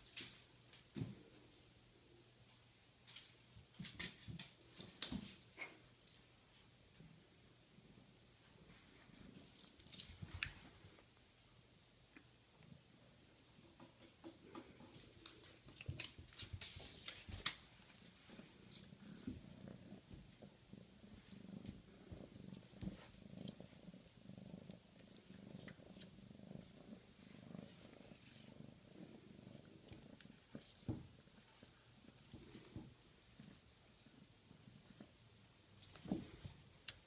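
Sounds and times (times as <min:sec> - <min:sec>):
kitten purring: 0:12.0 - 0:37.0.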